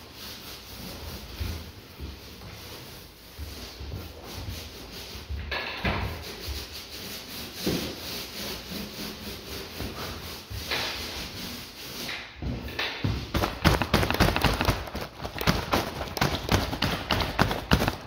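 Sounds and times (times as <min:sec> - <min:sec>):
paint roller swishing on wall: 0:00.0 - 0:18.0
footsteps on wooden floor: 0:12.4 - 0:18.0.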